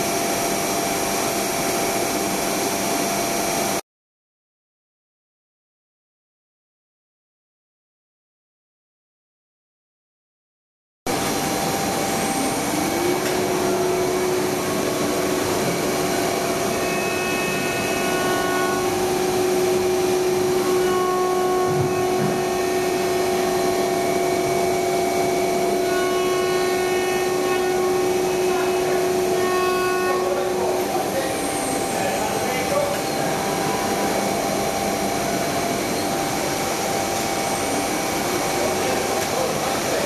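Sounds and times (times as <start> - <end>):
higher machine tones: 11.1 - 40.0
router spindle whine: 11.1 - 40.0.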